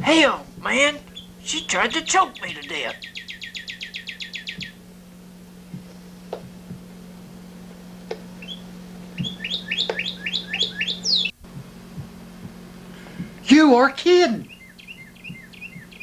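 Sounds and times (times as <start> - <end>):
songbird chirping: 0.0 - 4.9, 5.6 - 11.4, 14.4 - 16.0
steady low hum: 0.0 - 16.0.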